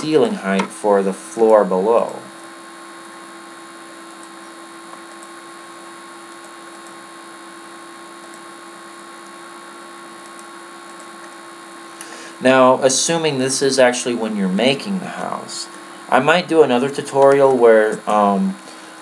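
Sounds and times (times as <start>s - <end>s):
low electrical hum: 0.0s - 19.0s
background hiss: 11.8s - 19.0s.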